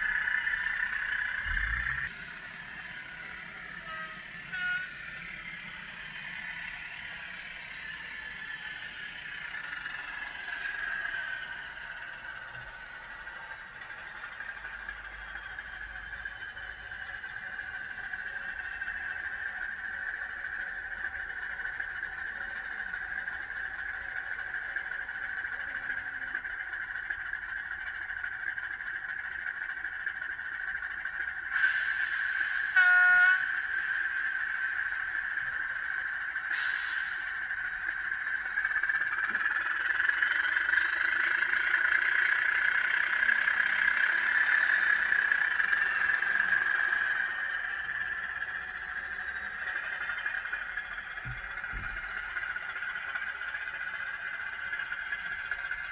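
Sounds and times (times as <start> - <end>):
locomotive running hum: 0.0 - 55.9
model train wheels rattling: 0.0 - 55.9
locomotive horn blast: 3.8 - 5.0, 32.7 - 33.5.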